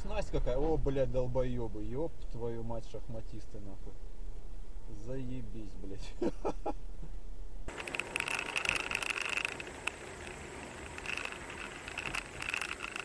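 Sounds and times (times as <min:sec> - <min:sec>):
road and engine noise: 0:07.7 - 0:13.0
small rattling clicks: 0:07.7 - 0:13.0.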